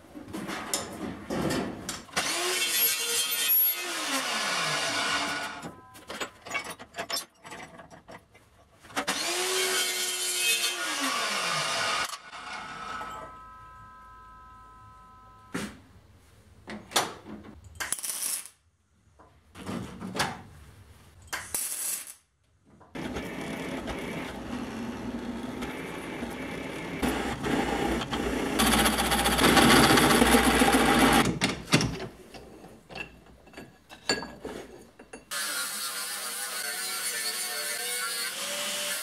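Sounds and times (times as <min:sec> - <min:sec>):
steady harsh tool noise: 0:09.1 - 0:15.6, 0:23.0 - 0:31.3, 0:35.3 - 0:39.0.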